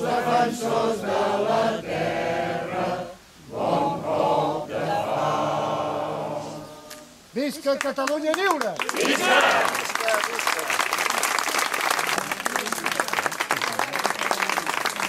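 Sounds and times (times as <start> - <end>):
group singing together: 0.0 - 7.2.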